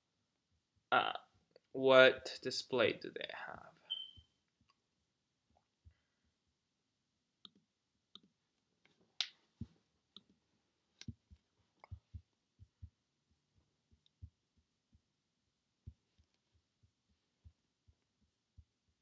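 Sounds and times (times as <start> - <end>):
soft low scrolling taps: 7.4 - 15.2, 15.8 - 19.0.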